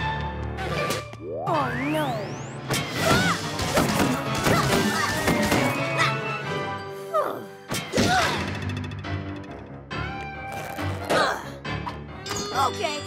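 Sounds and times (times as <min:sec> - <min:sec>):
cartoon background music: 0:00.0 - 0:13.0.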